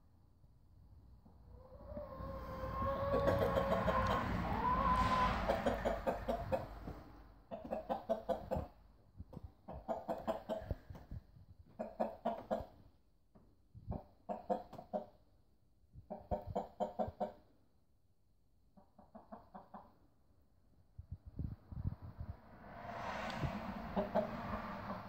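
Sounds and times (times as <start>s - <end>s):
rooster clucking rapidly: 1.6s - 6.8s, 7.5s - 8.7s, 9.7s - 10.9s, 11.8s - 12.8s.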